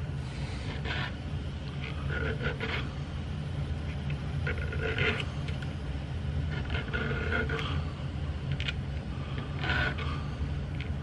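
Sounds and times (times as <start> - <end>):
steady low hum: 0.0 - 11.0
metal file rasping: 0.5 - 1.2, 1.9 - 3.0, 4.4 - 5.3, 6.5 - 7.8, 9.4 - 10.3.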